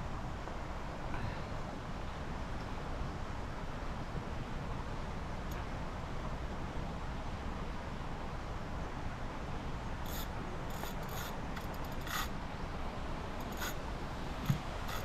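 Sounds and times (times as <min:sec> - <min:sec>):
fishing reel clicking: 0:10.1 - 0:12.3, 0:13.4 - 0:13.8, 0:14.4 - 0:15.0.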